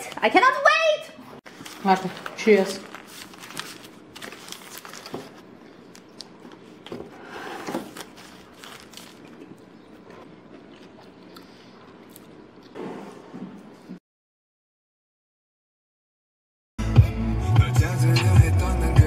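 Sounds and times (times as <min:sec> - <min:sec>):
paper wrapper crinkling: 0:01.5 - 0:06.8, 0:07.9 - 0:09.6
sandwich chewing: 0:07.9 - 0:12.8.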